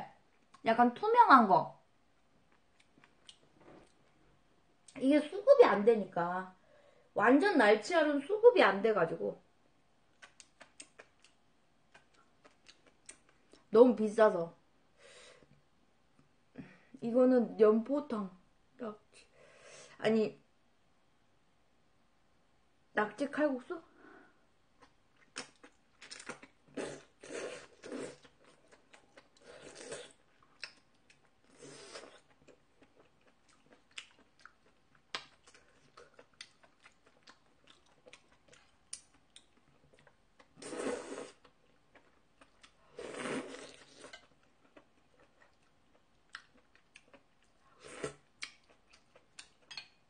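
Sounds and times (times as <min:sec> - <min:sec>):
person chewing food: 0:02.5 - 0:04.1, 0:10.1 - 0:13.6, 0:24.8 - 0:50.0.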